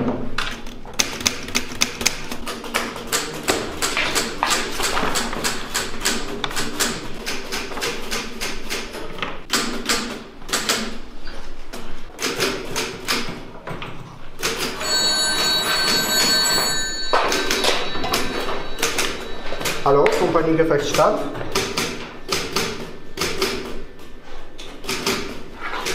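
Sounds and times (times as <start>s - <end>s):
telephone bell ringing: 14.6s - 21.5s.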